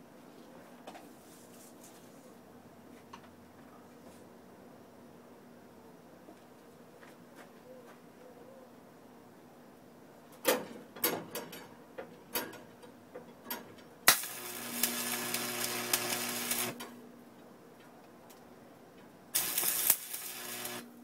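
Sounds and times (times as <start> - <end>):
arc welder crackling: 14.0 - 17.0, 19.3 - 21.0.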